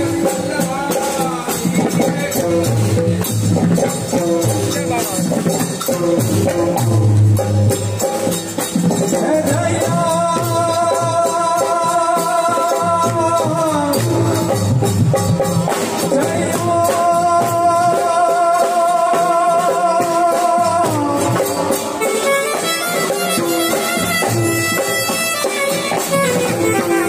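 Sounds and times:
drums beat: 0.0 - 27.0
shaker hand percussion: 0.0 - 27.0
person singing: 9.1 - 14.8, 16.0 - 27.0
keyboard melody: 22.0 - 27.0.

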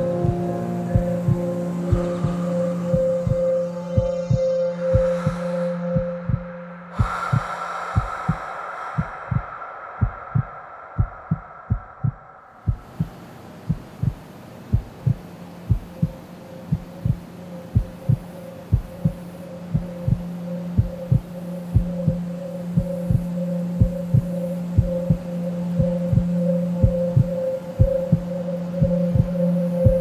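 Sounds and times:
steady low hum: 0.0 - 30.0
heartbeat double thump: 9.0 - 13.1, 13.7 - 14.2.

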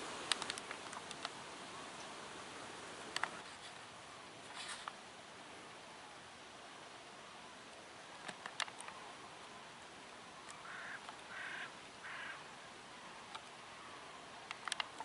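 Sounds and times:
low steady hiss: 0.0 - 15.0
light clicks: 0.2 - 1.4, 3.1 - 3.7, 8.2 - 9.0, 14.4 - 15.0
ducks quacking: 10.6 - 12.4.

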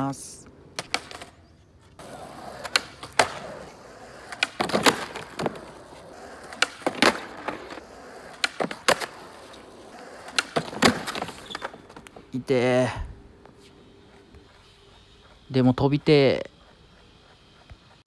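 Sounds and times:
skateboard wheels rolling on asphalt: 0.5 - 18.0
skateboard tail clacking: 0.7 - 1.4, 2.0 - 12.3
skateboard slapping down: 0.8 - 1.3, 2.0 - 12.2.

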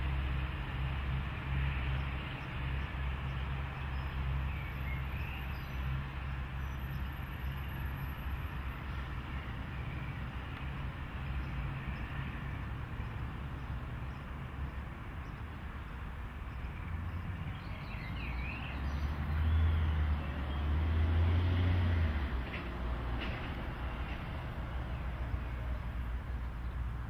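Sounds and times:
road traffic rumble: 0.0 - 27.0
vehicle passing: 15.8 - 27.0.

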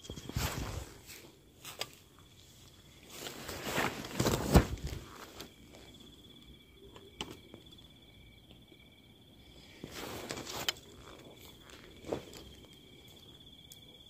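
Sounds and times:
rustling: 0.0 - 6.0, 9.5 - 13.4
footsteps on rough ground: 9.8 - 13.0.

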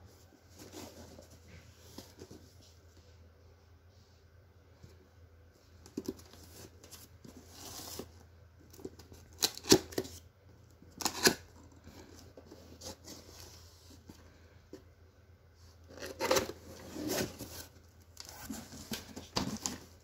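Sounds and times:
cardboard sliding and rubbing: 0.4 - 2.8, 16.0 - 20.0.

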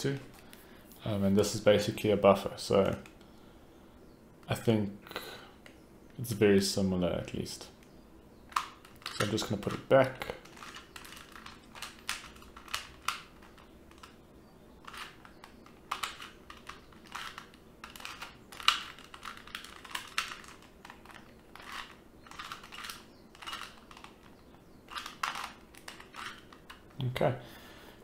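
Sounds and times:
plastic puzzle cube clicking: 8.5 - 9.8, 10.4 - 14.2, 14.8 - 27.0.

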